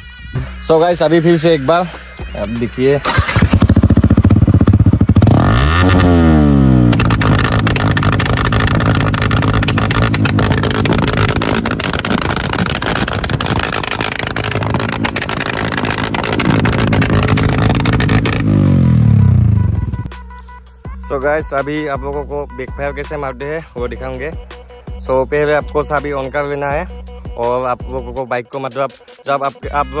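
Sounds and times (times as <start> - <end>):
motorcycle engine revving hard: 3.0 - 20.0
exhaust crackling pops: 3.0 - 20.1.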